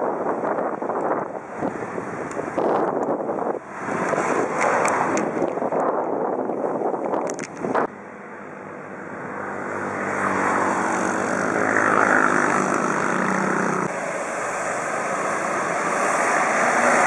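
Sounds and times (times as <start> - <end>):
wind or road noise: 0.0 - 17.0
engine running: 7.7 - 17.0.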